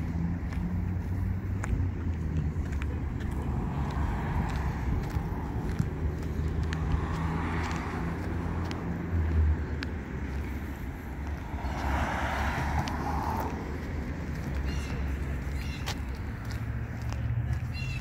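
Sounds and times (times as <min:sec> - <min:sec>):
low traffic rumble: 0:00.0 - 0:18.0
car passing close by: 0:03.4 - 0:09.7, 0:10.3 - 0:14.8.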